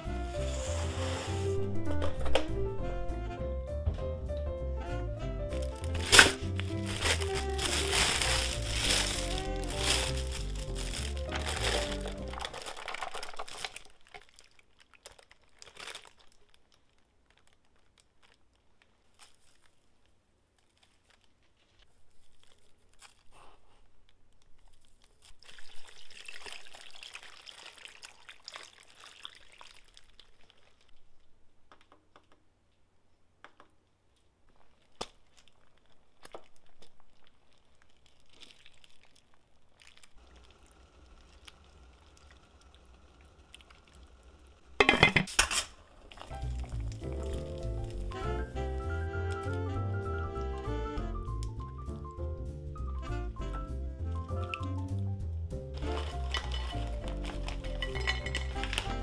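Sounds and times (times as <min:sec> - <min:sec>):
hissy noise: 0:00.0 - 0:01.7
background music: 0:00.0 - 0:12.6, 0:46.4 - 0:59.0
crinkling: 0:05.4 - 0:52.2, 0:54.1 - 0:59.0.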